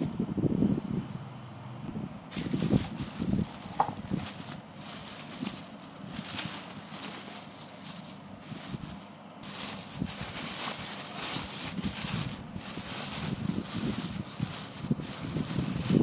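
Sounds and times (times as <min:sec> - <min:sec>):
plastic bags crinkling: 0:02.3 - 0:16.0.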